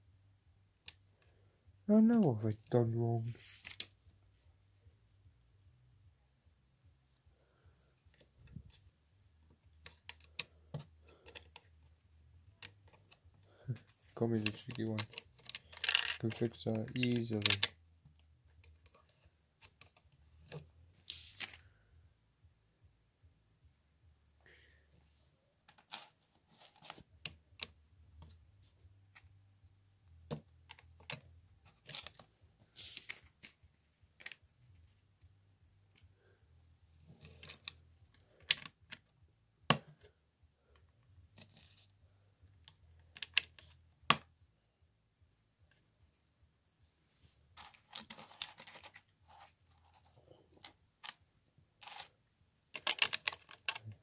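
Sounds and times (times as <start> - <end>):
plastic bricks clicking and snapping: 9.8 - 11.7, 12.6 - 17.8, 37.2 - 39.1, 42.7 - 44.2, 52.7 - 54.0
plastic pieces rustling: 13.7 - 17.7.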